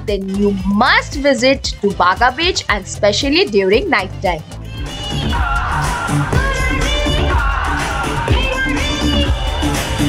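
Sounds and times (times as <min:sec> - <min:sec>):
steady beat and bass: 0:00.0 - 0:10.0
person singing pop song: 0:04.4 - 0:10.0.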